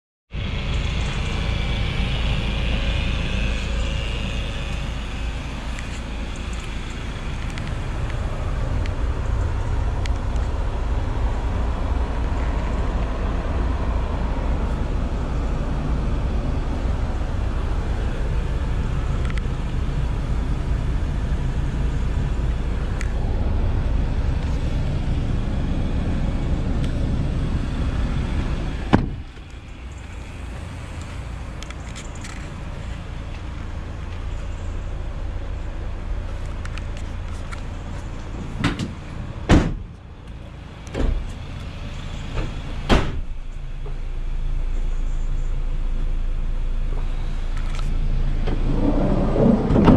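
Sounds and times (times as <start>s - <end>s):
low rumble inside van cab: 0.3s - 49.9s
metal clunks of van door latch: 28.9s - 29.2s, 38.6s - 39.9s, 42.4s - 43.3s.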